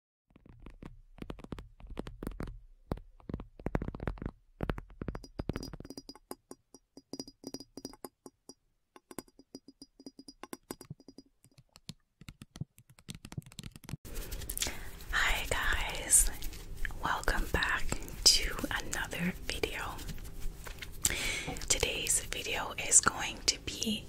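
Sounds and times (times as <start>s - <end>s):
sharp clicks and taps: 0.4s - 14.0s.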